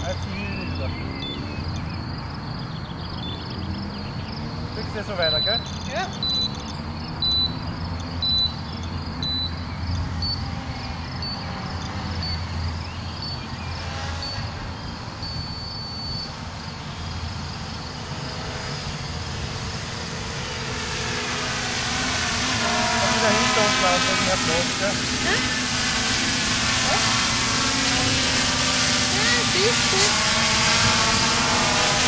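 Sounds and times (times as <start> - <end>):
quadcopter propellers buzzing: 0.0 - 32.0.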